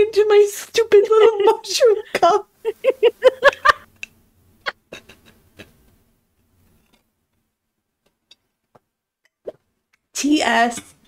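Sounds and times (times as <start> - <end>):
woman laughing: 0.9 - 3.9.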